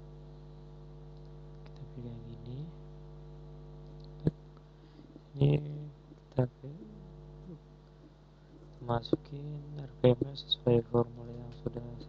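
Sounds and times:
electrical mains hum: 0.0s - 12.0s
faint muttering voice: 1.7s - 2.8s, 5.3s - 7.6s, 8.8s - 12.0s.

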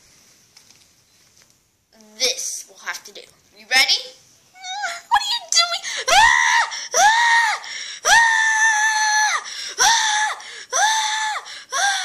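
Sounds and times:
girl screaming: 4.6s - 12.0s.

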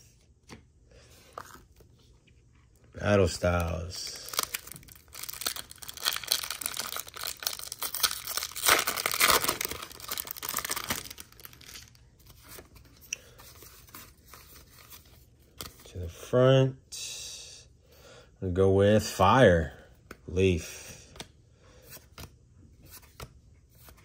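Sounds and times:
cards rustling: 0.1s - 16.2s
foil wrapper crinkling and tearing: 3.3s - 12.0s.

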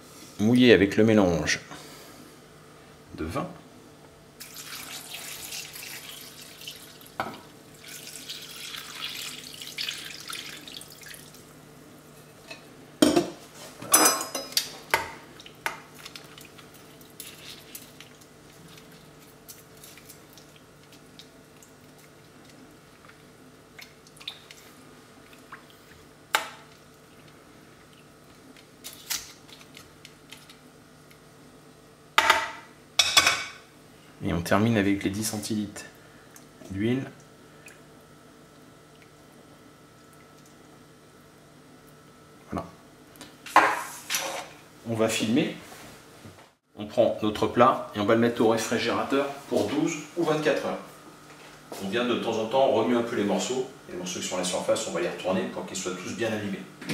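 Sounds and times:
liquid splashing pour: 4.4s - 11.5s.

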